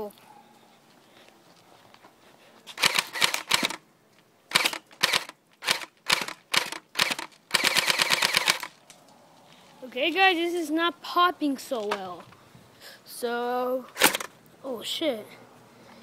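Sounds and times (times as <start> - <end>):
airsoft gun shots: 2.8 - 3.8.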